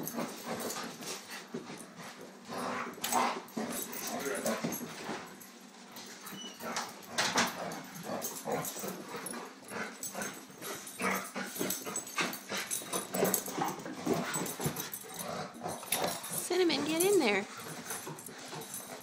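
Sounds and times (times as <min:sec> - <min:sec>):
dogs scuffling: 0:00.0 - 0:19.0
dogs yipping: 0:06.2 - 0:07.5.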